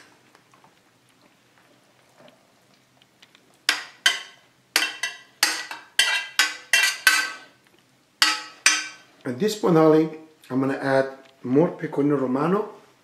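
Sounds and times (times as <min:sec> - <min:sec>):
metal ladle scraping a pan: 0:03.7 - 0:07.6.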